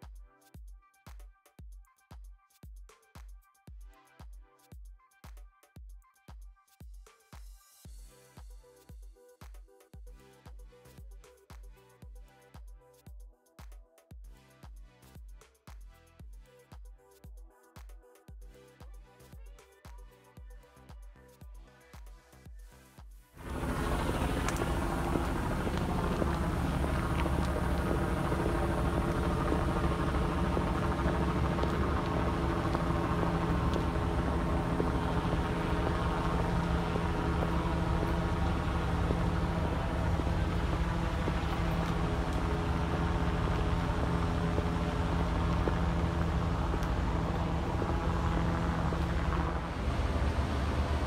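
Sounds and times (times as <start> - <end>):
engine drone: 23.4 - 51.0.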